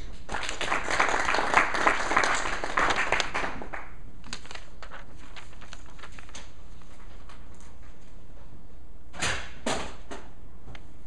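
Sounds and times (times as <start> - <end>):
small audience clapping: 0.0 - 4.6
low room hum: 0.0 - 11.0.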